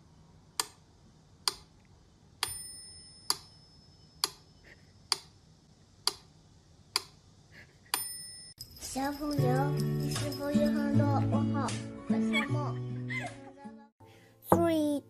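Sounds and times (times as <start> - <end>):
metronome bell ding: 2.4 - 4.2, 8.0 - 11.2.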